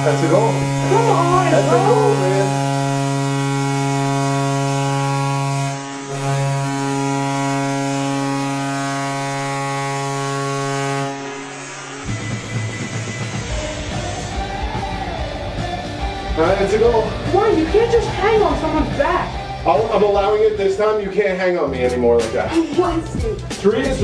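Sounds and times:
hockey goal horn blast: 0.2s - 12.6s.

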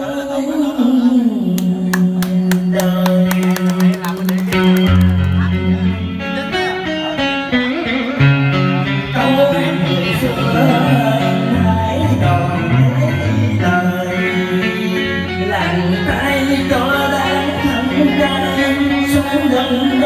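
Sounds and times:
plucked string instrument: 1.5s - 20.0s
man singing long wavering notes: 5.7s - 20.0s.

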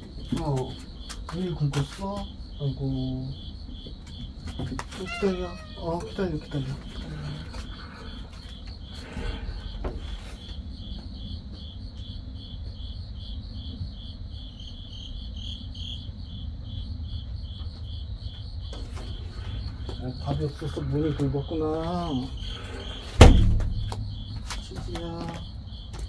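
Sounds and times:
cricket chirping: 0.0s - 26.0s
low rumble: 18.8s - 25.7s.

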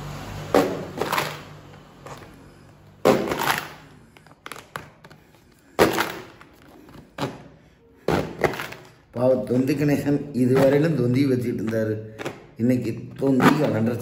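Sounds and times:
plastic cracking and tearing: 3.1s - 5.2s.

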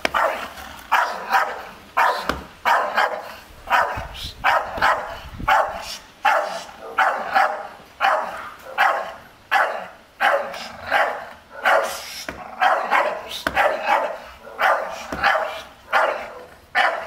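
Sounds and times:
dog barking: 0.0s - 17.0s.

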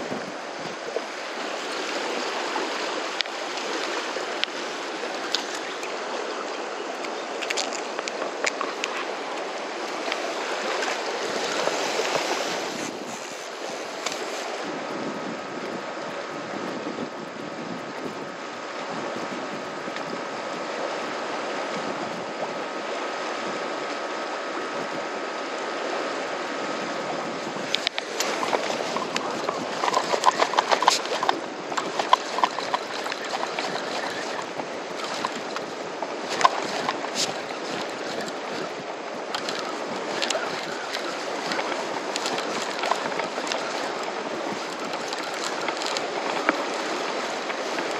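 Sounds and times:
wind: 0.0s - 47.9s
water washing against concrete: 27.3s - 47.9s.

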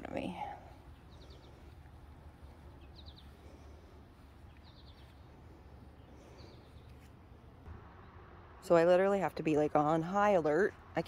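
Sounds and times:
bird chirping: 0.0s - 8.3s
low outdoor rumble: 0.0s - 11.0s.

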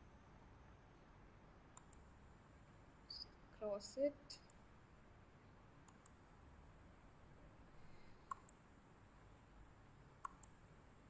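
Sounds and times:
computer mouse clicks: 1.8s - 2.1s, 5.8s - 6.2s, 8.2s - 8.6s, 10.2s - 10.6s.

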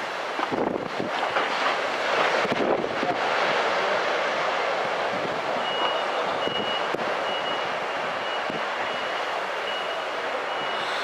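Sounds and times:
breaking surf: 0.0s - 11.0s
reversing alarm beeping: 5.6s - 11.0s.

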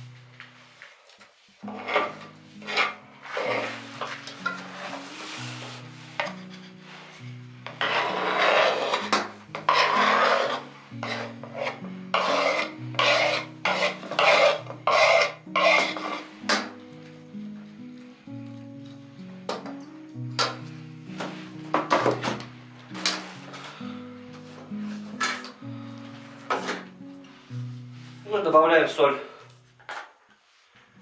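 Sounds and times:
food grated on metal grater: 7.8s - 16.3s.

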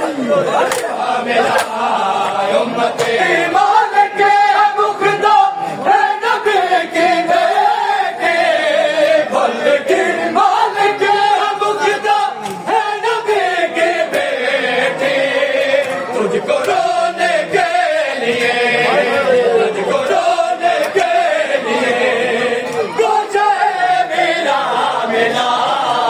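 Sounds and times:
men chanting together: 0.0s - 26.0s
hands slapping chests: 0.6s - 1.8s, 12.4s - 12.7s.

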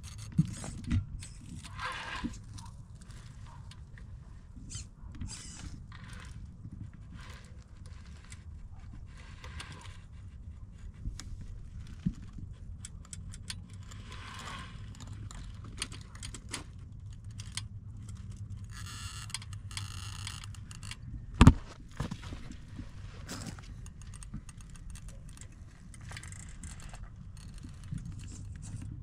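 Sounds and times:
low drivetrain hum: 0.0s - 29.0s
motor buzzing: 4.7s - 6.5s.

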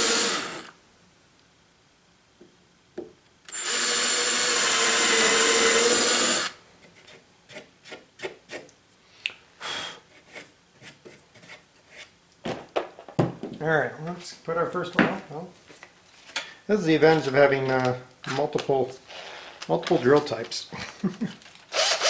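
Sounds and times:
drill boring into wood: 0.0s - 0.8s, 3.5s - 6.6s, 21.7s - 22.0s.

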